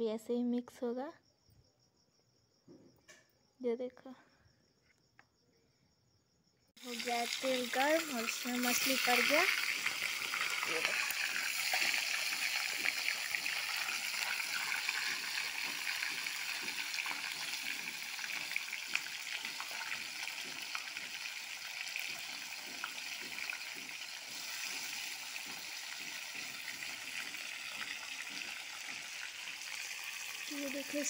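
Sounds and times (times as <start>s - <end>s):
fish sizzling in hot oil: 6.8s - 31.0s.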